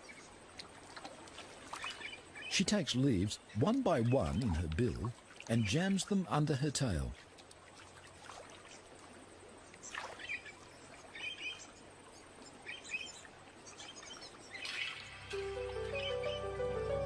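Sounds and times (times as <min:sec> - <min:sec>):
bird chirps: 0:12.6 - 0:17.0.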